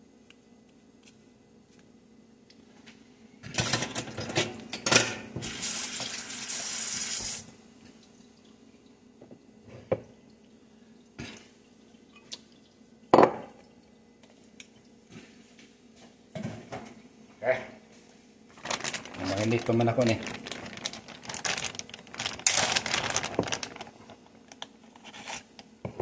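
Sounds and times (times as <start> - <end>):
kitchen tap running: 5.4 - 7.4.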